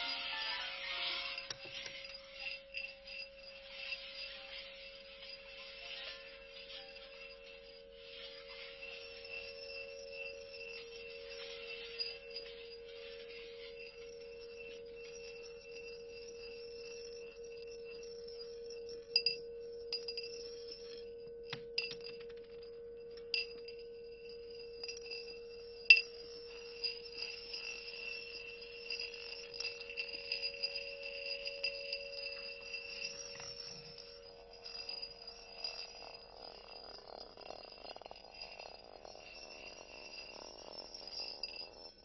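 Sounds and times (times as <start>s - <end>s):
faint high ringing: 0.0s - 42.0s
low ringing tone: 0.0s - 42.0s
bowls clinking: 8.6s - 42.0s.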